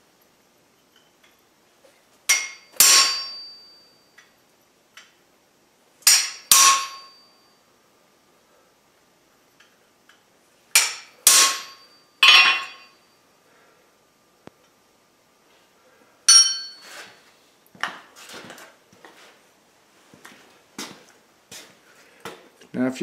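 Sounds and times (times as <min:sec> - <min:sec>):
hammer striking chisel on metal: 0:02.3 - 0:03.7, 0:06.0 - 0:07.2, 0:10.8 - 0:13.0, 0:16.3 - 0:16.8.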